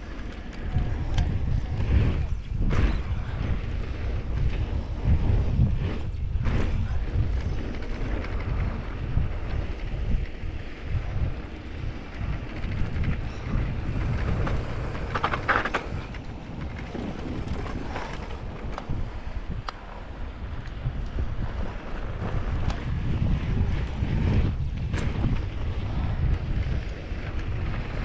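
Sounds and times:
bike tyres and frame rattling: 0:00.0 - 0:28.0
wind buffeting microphone: 0:00.0 - 0:28.0.

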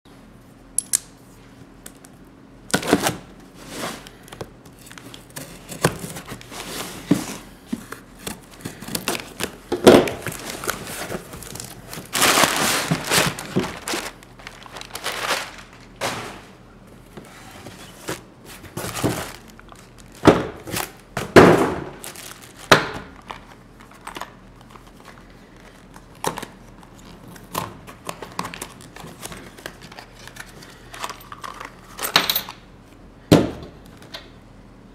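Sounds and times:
packing paper rustling: 0:02.8 - 0:21.1, 0:21.8 - 0:32.0
knocks of contents handled: 0:07.0 - 0:14.2.

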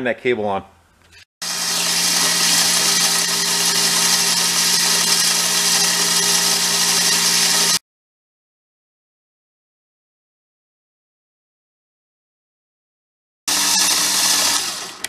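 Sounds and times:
electric winch motor whirring: 0:01.4 - 0:07.8, 0:13.5 - 0:15.0.

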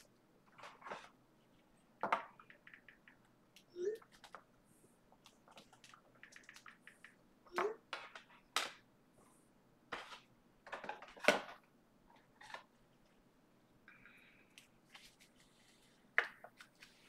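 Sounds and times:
objects clicking and tapping: 0:02.0 - 0:04.5, 0:05.2 - 0:08.8.

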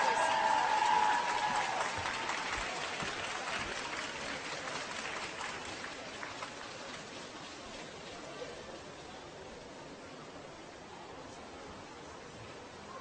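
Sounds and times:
crowd applause: 0:00.0 - 0:07.6.

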